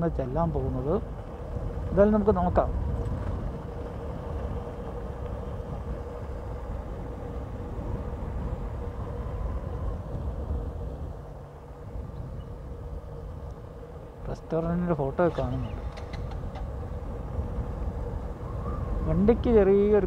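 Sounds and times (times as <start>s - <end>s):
wind and road noise: 0.0s - 20.0s
motorcycle engine running: 15.2s - 17.0s.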